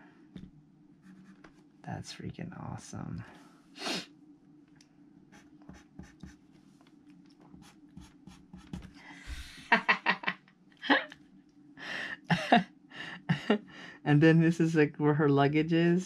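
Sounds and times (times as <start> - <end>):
pencil scratching on paper: 5.3 - 6.4, 7.5 - 8.9.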